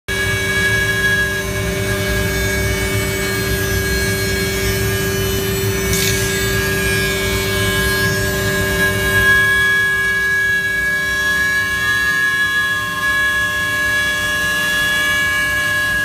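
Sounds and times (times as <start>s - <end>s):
router spindle whine: 0.1s - 16.0s
router bit rumbling in wood: 3.0s - 9.1s.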